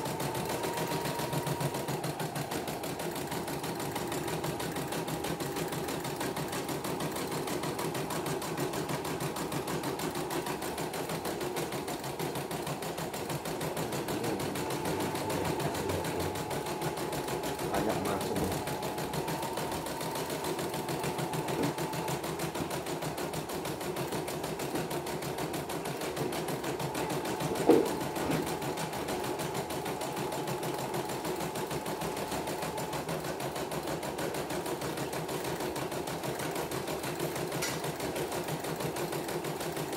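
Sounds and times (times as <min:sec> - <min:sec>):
embroidery machine stitching: 0:00.0 - 0:39.9.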